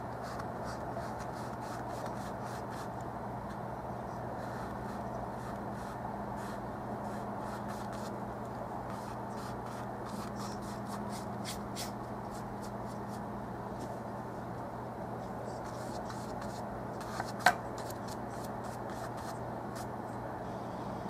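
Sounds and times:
low electrical hum: 0:00.0 - 0:21.0
paint brush strokes on canvas: 0:15.4 - 0:19.9.

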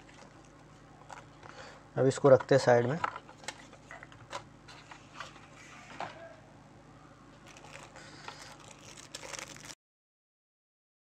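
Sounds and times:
plastic packaging rustling: 0:07.4 - 0:09.8.

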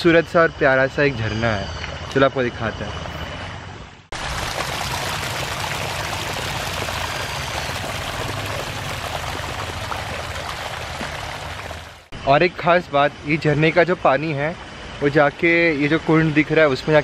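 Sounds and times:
small waterfall splashing: 0:04.1 - 0:12.1.

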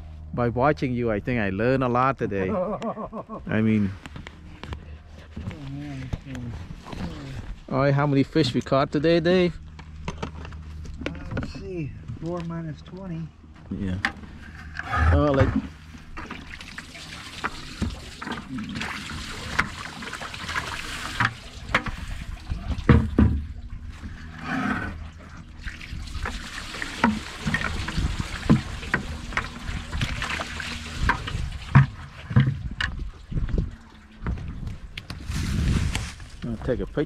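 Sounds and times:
water splashing in bucket: 0:15.1 - 0:36.2.

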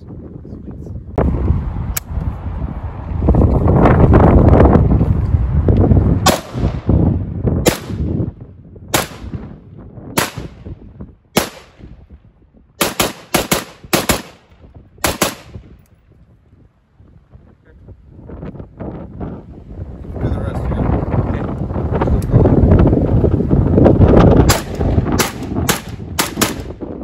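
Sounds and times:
rifle shots echoing: 0:06.3 - 0:06.9, 0:07.6 - 0:08.1, 0:08.9 - 0:09.5, 0:10.2 - 0:10.7, 0:11.4 - 0:11.9, 0:12.8 - 0:15.7, 0:24.5 - 0:26.8.

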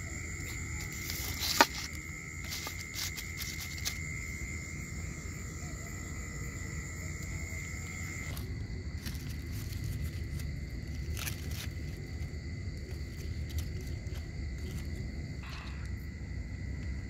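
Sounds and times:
foil crinkling: 0:00.0 - 0:04.4, 0:07.3 - 0:15.2.

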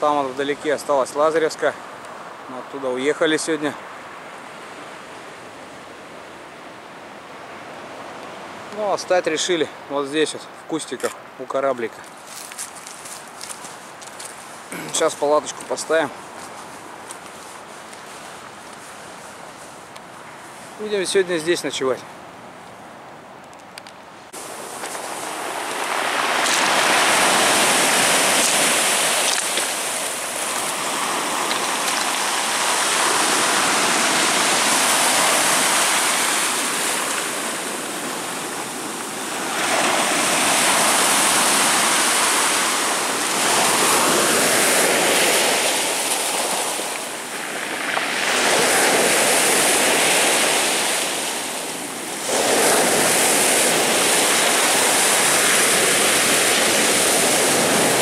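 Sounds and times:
surf breaking on shore: 0:14.6 - 0:17.2, 0:24.3 - 0:58.0.

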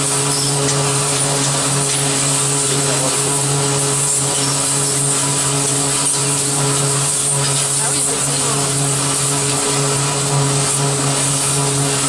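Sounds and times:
pipe bevelling machine humming: 0:00.0 - 0:12.0.

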